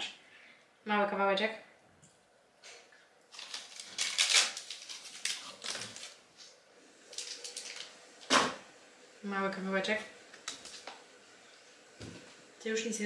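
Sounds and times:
crisp clicks and rustles: 3.3s - 8.0s.

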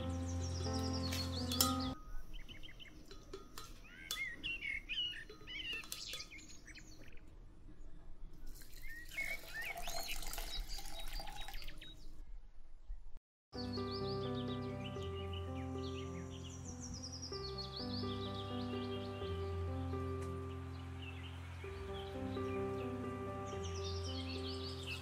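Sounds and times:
birds chirping: 0.0s - 13.0s, 13.6s - 25.0s
water pouring into blender jar: 8.5s - 11.8s.

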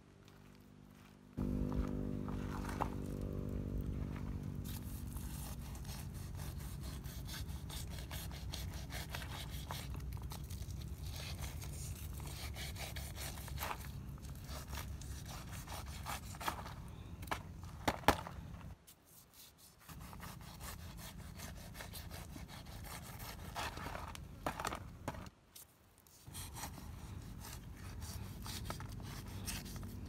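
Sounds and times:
knife sawing through crusty skin: 4.6s - 16.8s, 19.2s - 24.2s, 26.2s - 30.0s.

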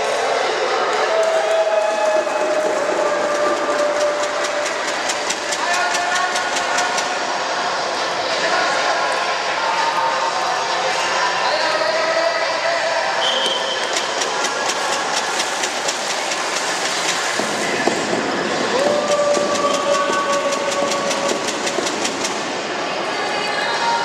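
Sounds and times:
crowd voices: 0.0s - 24.0s
fast even clacks: 2.6s - 7.3s, 13.8s - 22.6s.

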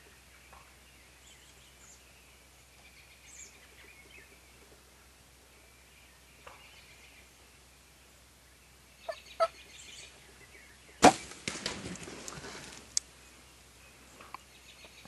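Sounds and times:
crackling and rustling: 11.0s - 13.1s
sharp crack: 11.0s - 13.1s.

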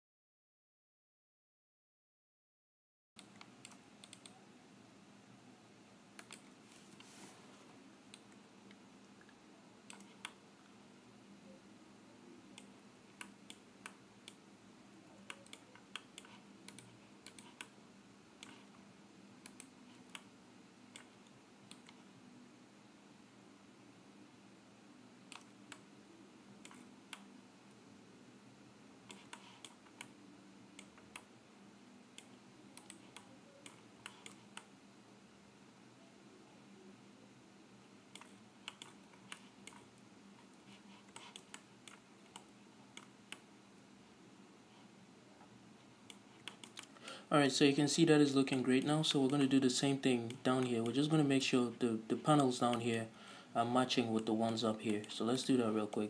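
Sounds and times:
low steady hum: 3.2s - 56.0s
computer mouse and keyboard clicks: 6.2s - 7.1s, 8.1s - 10.4s, 15.2s - 17.8s, 18.4s - 18.8s, 25.3s - 25.9s, 26.6s - 27.3s, 29.0s - 30.2s, 32.2s - 34.7s, 38.1s - 43.5s, 46.1s - 47.0s.

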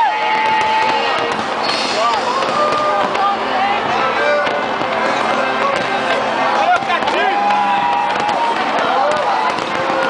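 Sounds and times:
huge crowd cheering: 0.0s - 10.0s
faint fireworks pops: 0.2s - 3.4s, 4.4s - 10.0s.

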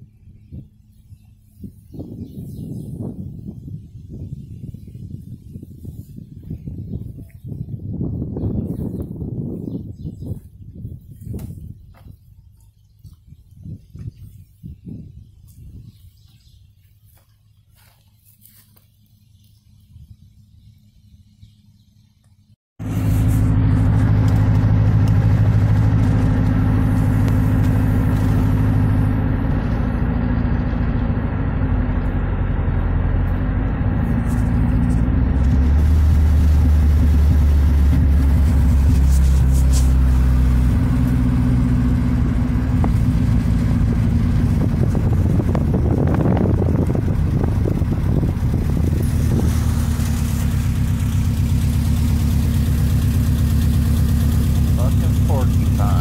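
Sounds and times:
road noise: 16.4s - 56.0s
truck engine drone: 17.6s - 56.0s.

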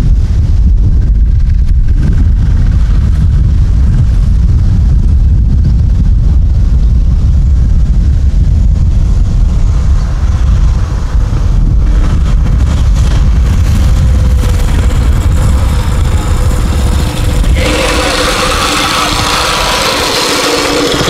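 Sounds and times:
wind buffeting microphone: 0.0s - 21.0s
distant small engine running: 9.6s - 21.0s.

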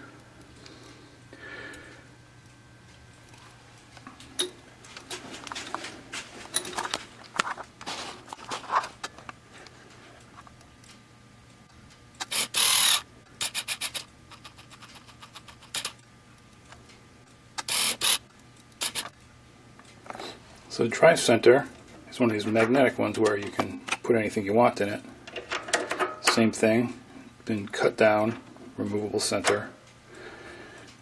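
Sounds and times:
metal parts scraping and clicking: 12.2s - 16.0s, 17.6s - 18.2s, 18.8s - 19.1s.

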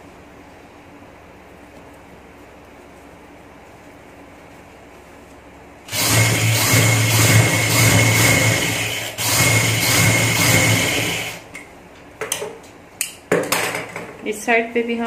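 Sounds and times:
sewing machine stitching: 5.9s - 11.4s.

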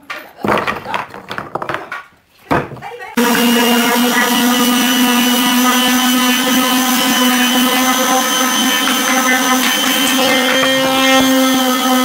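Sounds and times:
electric sander on wood: 3.2s - 12.0s.

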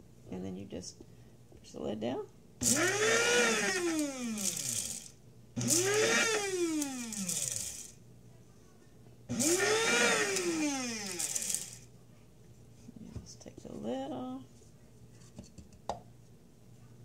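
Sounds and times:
blade coffee grinder whirring: 2.6s - 8.0s, 9.3s - 11.8s.

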